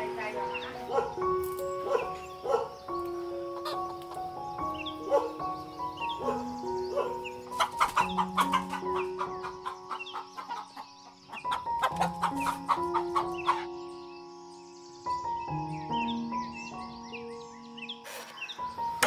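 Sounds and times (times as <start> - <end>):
soft background music: 0.0 - 19.0
chickens clucking: 0.2 - 13.8.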